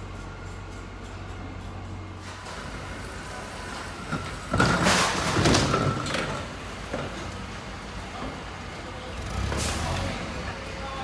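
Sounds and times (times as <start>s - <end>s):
forklift running: 0.0s - 11.0s
forklift scraping crate: 2.2s - 7.4s.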